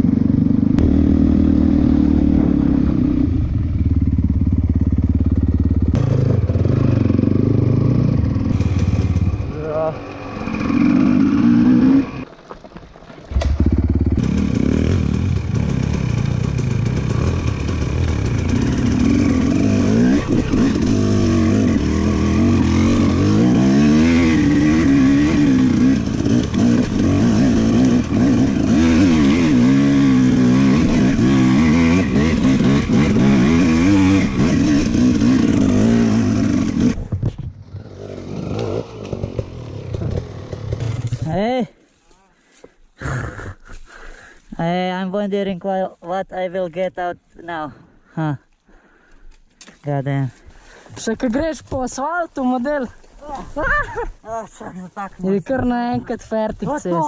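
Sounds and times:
dirt bike engine revving: 0.0s - 12.3s, 13.3s - 37.0s, 37.7s - 41.3s.

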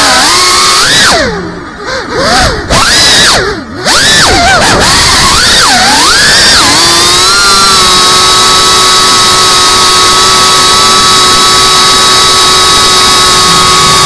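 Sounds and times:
drone motors whining: 0.0s - 14.0s.

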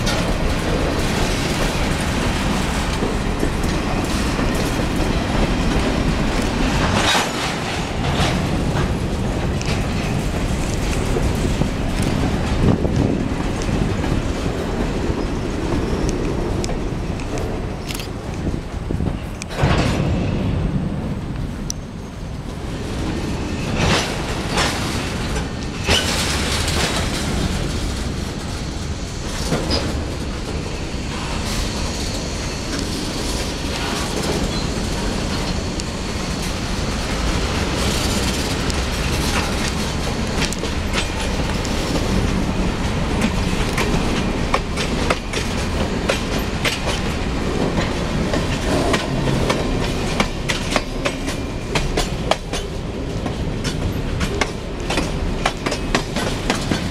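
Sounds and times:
freight train wheels rumbling: 0.0s - 56.9s
wheels clicking on track joints: 23.7s - 56.9s.

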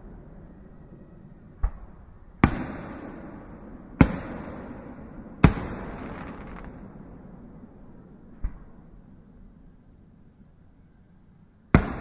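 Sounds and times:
fireworks bangs: 5.4s - 6.8s.

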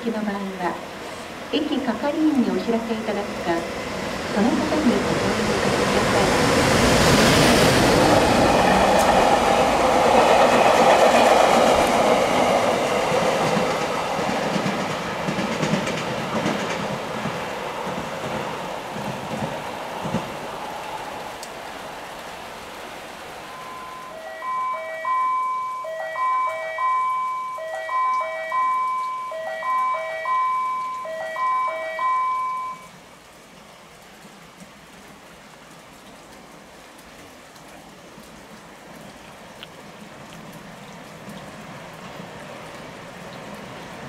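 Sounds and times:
approaching train rumble: 0.8s - 22.4s
electronic chime melody: 23.5s - 32.9s.

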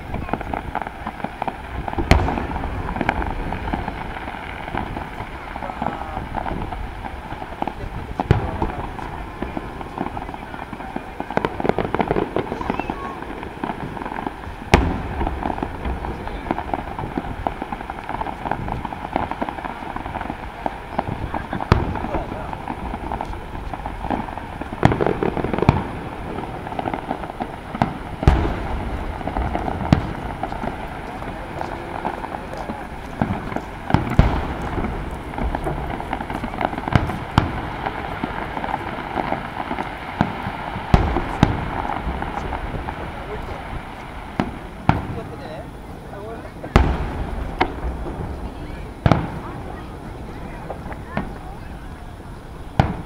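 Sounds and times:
firework pops and crackles: 0.0s - 53.0s.

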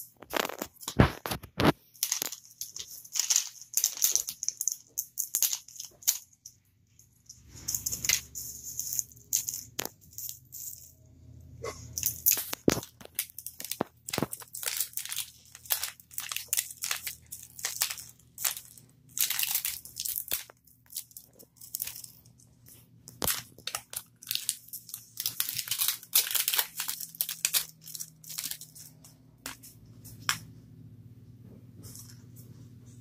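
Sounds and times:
plastic wrapping crinkling and tearing: 0.0s - 6.3s, 12.0s - 29.6s.

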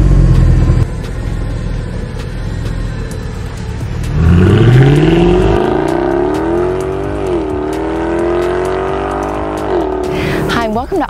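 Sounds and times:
car exhaust accelerating hard: 0.0s - 10.6s.

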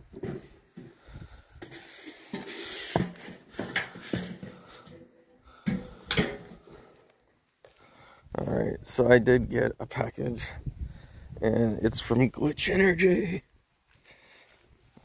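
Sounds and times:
metal mailbox clanks: 5.6s - 6.7s.

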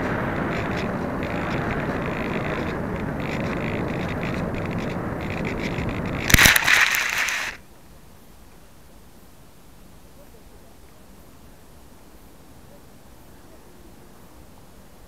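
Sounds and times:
plane hitting the ground: 0.0s - 7.6s
scraping through grass: 0.0s - 7.6s
wind and motor noise: 0.0s - 7.7s.

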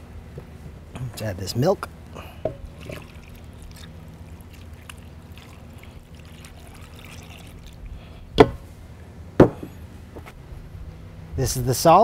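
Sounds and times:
milk pouring trickle: 2.0s - 8.0s.

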